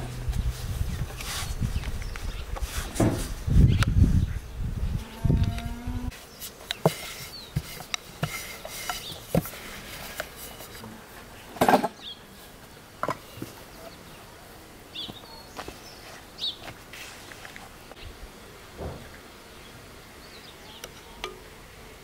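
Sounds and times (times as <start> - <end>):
bird chirps: 15.0 - 16.6.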